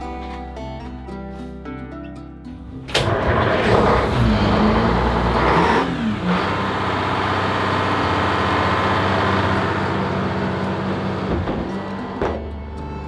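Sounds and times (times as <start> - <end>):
diesel engine idling: 3.0 - 12.9.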